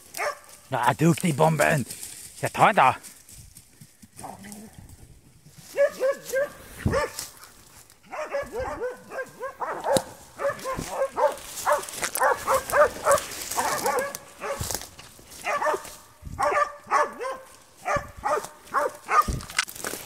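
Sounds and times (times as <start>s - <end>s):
dog barking high-pitched: 0.2s - 0.5s, 5.7s - 7.2s, 8.1s - 14.7s, 15.4s - 19.5s.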